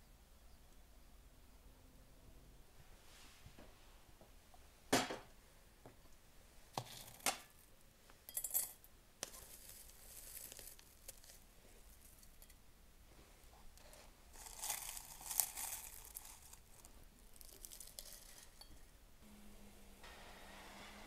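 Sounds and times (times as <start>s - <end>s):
fingers rustling dried herbs: 9.2s - 12.4s, 13.7s - 18.7s.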